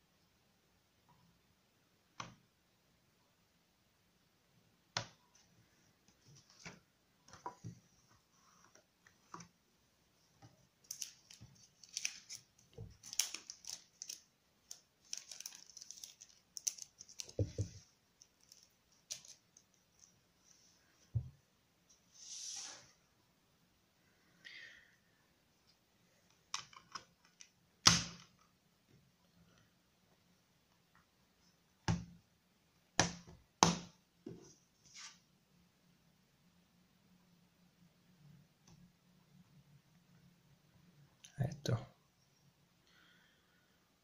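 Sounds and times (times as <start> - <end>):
plastic and paper rustling: 10.8 - 20.1.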